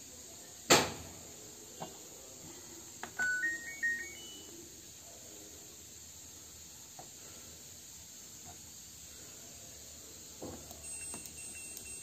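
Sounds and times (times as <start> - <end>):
washing machine power-on beeps: 3.2 - 4.6, 10.8 - 12.0.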